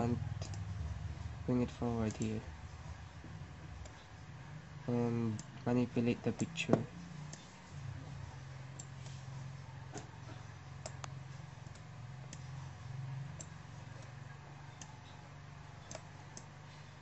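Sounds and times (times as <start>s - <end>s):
low steady hum: 0.0s - 17.0s
computer mouse clicks: 0.4s - 0.7s, 1.6s - 2.4s, 6.4s - 7.6s, 8.7s - 9.2s, 9.8s - 12.6s, 13.3s - 15.2s, 15.8s - 16.6s.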